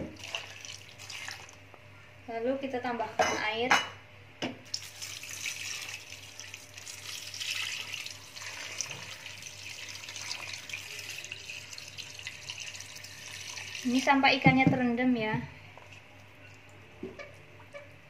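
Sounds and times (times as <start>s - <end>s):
water pouring into a pot: 0.1s - 1.6s, 4.7s - 14.2s.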